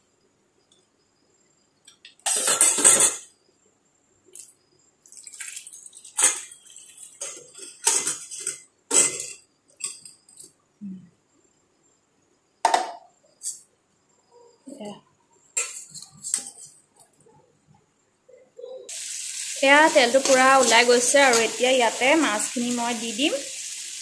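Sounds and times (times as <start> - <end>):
liquid splashing into metal bowl: 5.0 - 8.2.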